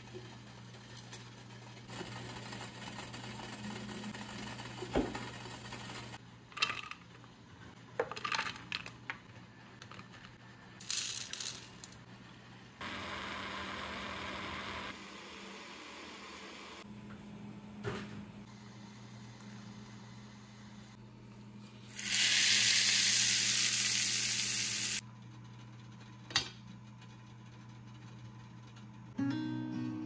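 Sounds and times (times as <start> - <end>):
hiss: 21.9 - 25.0.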